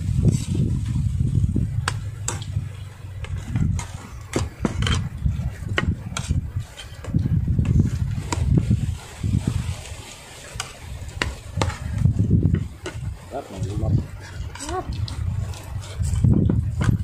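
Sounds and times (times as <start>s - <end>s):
low rumble: 0.0s - 9.8s.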